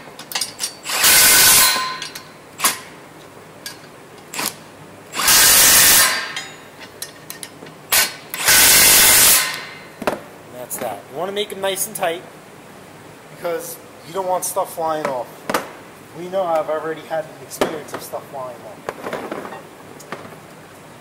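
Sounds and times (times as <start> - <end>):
impact wrench rattling: 0.2 - 2.9.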